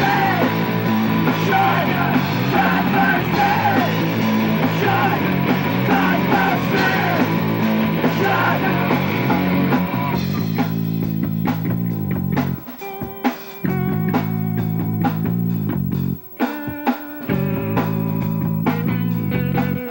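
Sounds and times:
person singing: 0.0s - 9.6s
drum kit: 0.0s - 19.9s
electric guitars: 0.0s - 19.9s.

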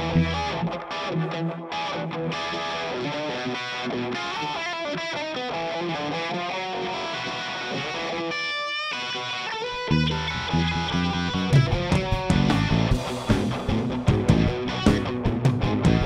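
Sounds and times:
electric guitar solo: 0.0s - 16.0s
band playing: 9.8s - 16.0s.

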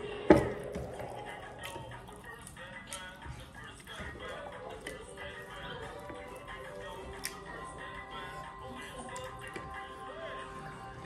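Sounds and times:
background music with held tones: 0.0s - 11.0s.

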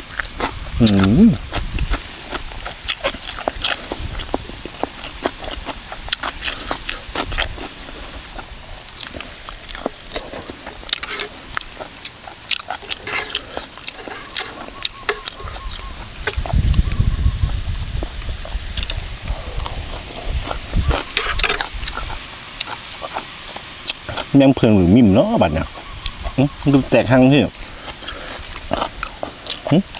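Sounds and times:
chewing and lip-smacking: 0.0s - 24.4s, 25.5s - 29.9s
food crunching: 0.0s - 29.9s
low rumble on microphone: 14.2s - 22.2s.

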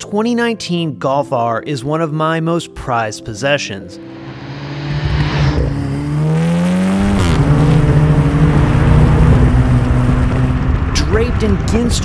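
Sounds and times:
car engine accelerating: 4.0s - 12.0s.

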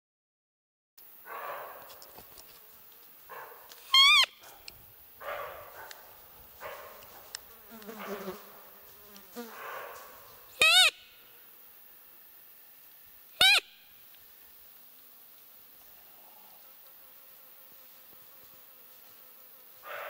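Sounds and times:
flies buzzing softly: 1.0s - 13.3s, 14.0s - 20.0s
deer call lure squeaks: 3.9s - 4.3s, 10.6s - 11.0s, 13.4s - 13.7s.

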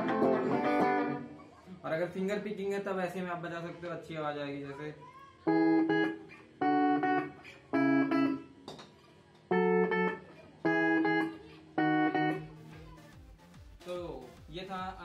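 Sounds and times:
fingerpicked electric guitar: 0.0s - 1.4s, 5.5s - 8.6s, 9.4s - 12.7s.

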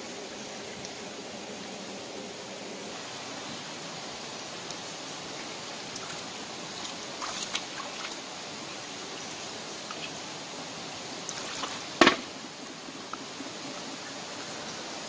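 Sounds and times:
stream running over rocks: 0.0s - 15.0s
wading splashes and knocks: 5.8s - 8.3s, 11.2s - 12.4s.

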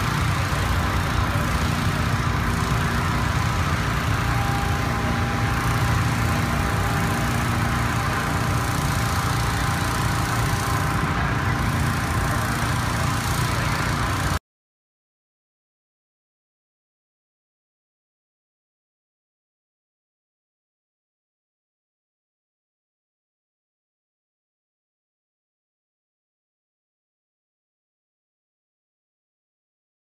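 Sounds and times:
loud engine-like rumble: 0.0s - 14.4s.

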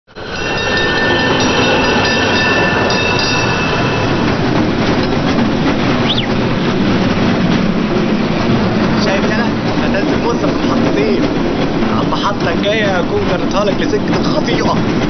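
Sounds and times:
train rail rumble: 0.1s - 15.0s
high whine: 5.7s - 6.8s
high squeal: 6.0s - 6.4s.

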